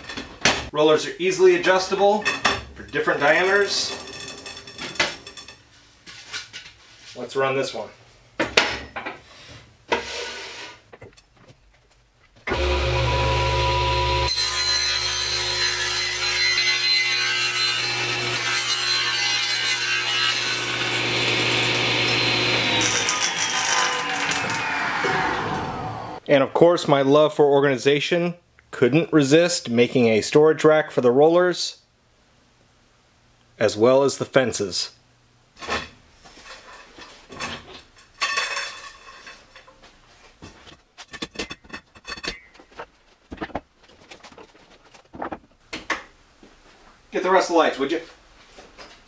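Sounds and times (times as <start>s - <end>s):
metal rollers knocking and clinking: 2.2s - 5.6s
saw blade whine winding down: 12.5s - 18.4s, 19.8s - 26.2s
table saw cutting wood: 12.5s - 26.2s.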